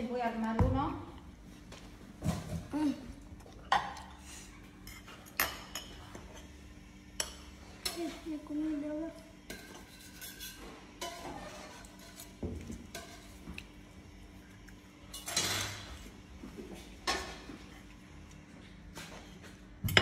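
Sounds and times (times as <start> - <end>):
forks clinking on plates: 4.8 - 6.5, 9.5 - 12.3, 15.1 - 15.9
forks scraping on plates: 9.5 - 13.4.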